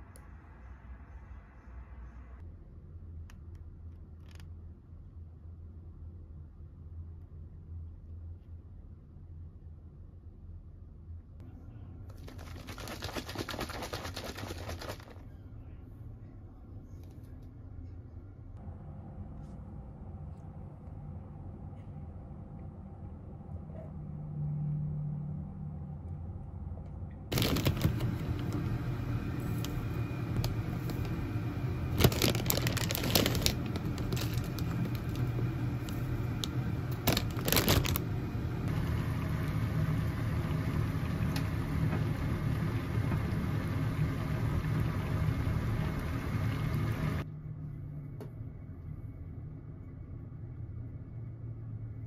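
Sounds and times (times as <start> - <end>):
steady whirring hum: 0.0 - 52.0
rustling crunching scrapes: 32.0 - 36.0.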